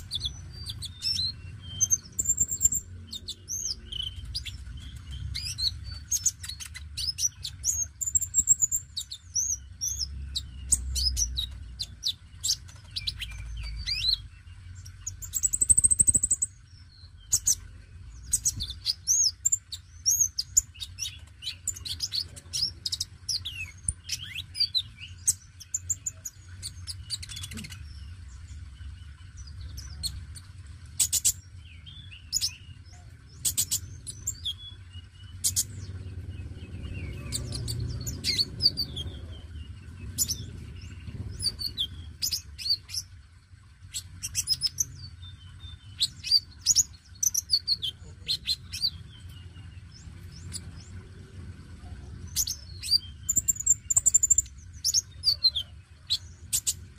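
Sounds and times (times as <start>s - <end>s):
bird chirping and trilling: 0.0s - 56.9s
low rumble: 31.5s - 55.0s.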